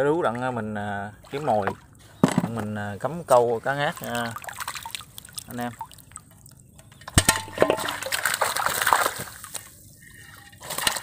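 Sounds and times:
water sloshing and splashing: 0.0s - 11.0s.

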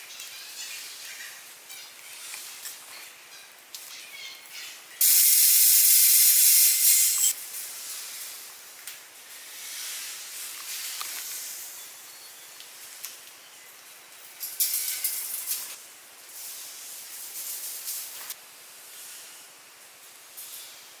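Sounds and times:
faint hiss: 0.0s - 21.0s
loud high hissing burst: 5.0s - 7.4s.

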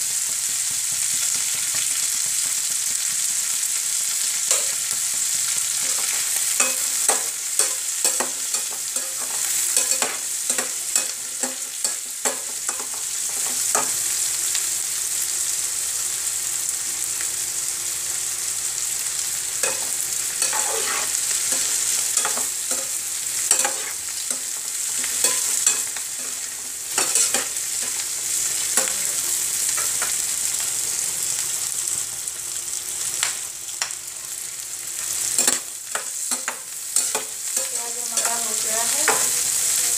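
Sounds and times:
onions sizzling in hot oil: 0.0s - 39.9s
spatula scraping metal pan: 19.6s - 28.0s.

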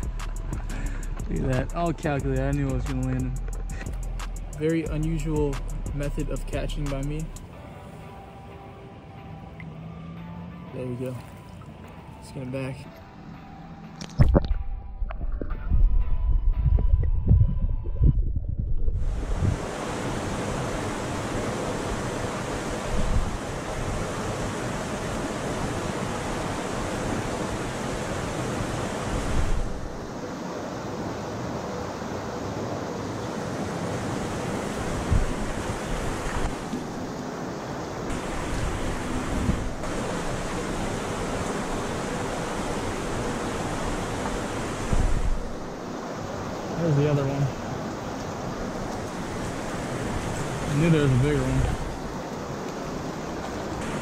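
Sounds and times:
creek water over rocks: 0.0s - 7.8s, 9.5s - 13.1s, 18.9s - 54.0s
wind buffeting microphone: 14.1s - 30.2s, 33.6s - 37.1s, 38.0s - 46.7s, 47.5s - 54.0s
low rumble on microphone: 14.2s - 19.6s.

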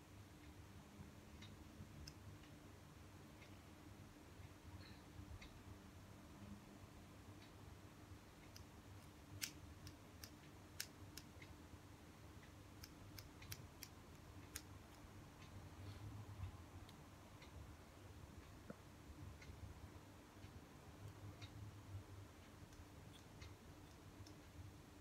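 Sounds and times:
scissors snipping hair: 8.5s - 11.3s.

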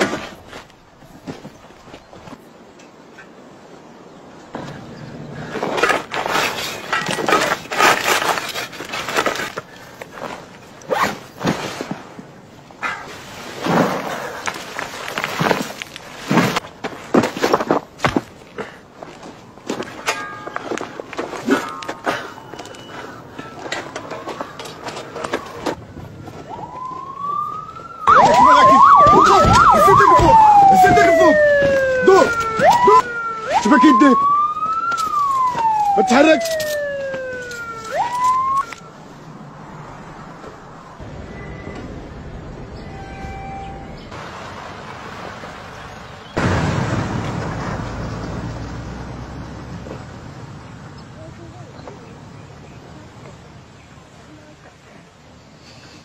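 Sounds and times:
gravel and stones crunching: 0.0s - 2.6s, 4.5s - 41.1s, 44.0s - 52.2s
police siren wailing and yelping: 23.6s - 39.0s.

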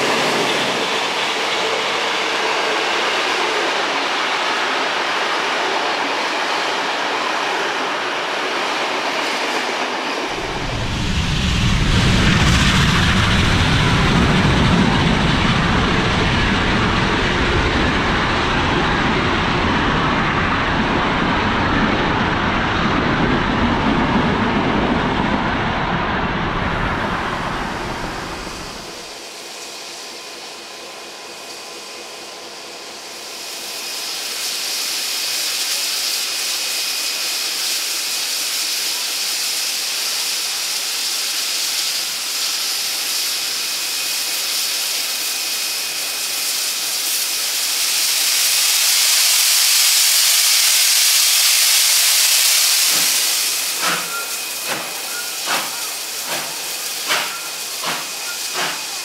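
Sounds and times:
steam hissing from locomotive: 27.1s - 59.0s
steam locomotive exhaust chuffs: 27.4s - 59.0s.

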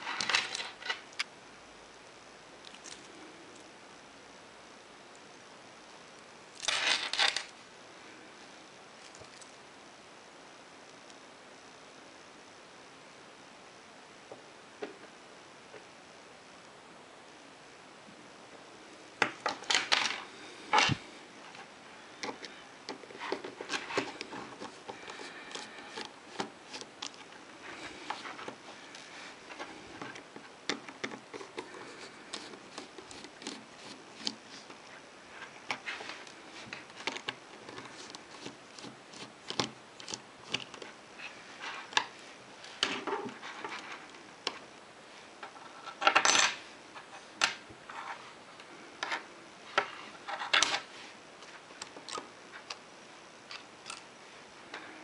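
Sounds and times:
small metal parts clinking: 6.6s - 7.5s.

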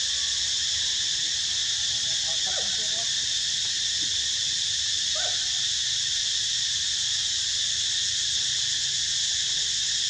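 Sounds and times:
high-pitched insect chorus: 0.0s - 10.0s.

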